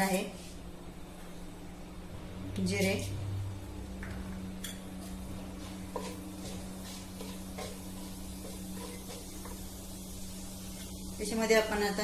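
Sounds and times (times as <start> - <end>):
steady low hum: 0.0 - 12.0
light sizzle: 2.6 - 12.0
spatula stirring seeds in oil: 5.0 - 11.9.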